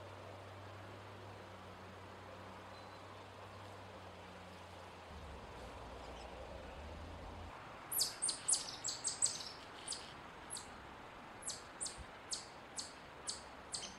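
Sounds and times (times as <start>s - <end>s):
chipmunk chip calls: 7.9s - 10.7s, 11.4s - 13.9s.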